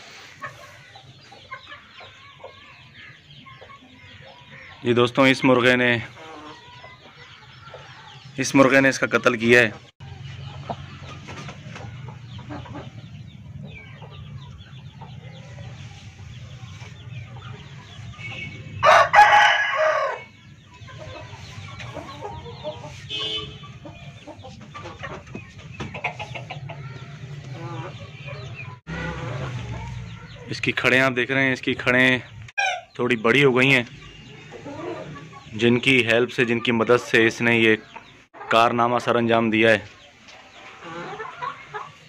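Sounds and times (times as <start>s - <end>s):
chicken clucking: 0.0s - 19.9s, 20.5s - 31.1s, 32.0s - 42.0s
rooster crowing: 18.8s - 20.3s.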